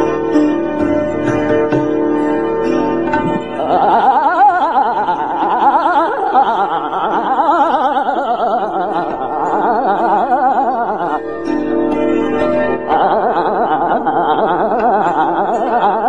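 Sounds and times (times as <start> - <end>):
classical vocal singing: 3.2 - 11.3, 12.8 - 16.0.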